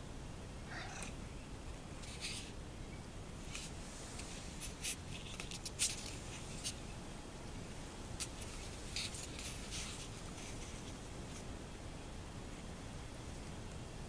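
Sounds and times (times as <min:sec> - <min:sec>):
kittens scratching on cloth: 0:02.0 - 0:02.6, 0:03.4 - 0:06.9, 0:08.2 - 0:11.5.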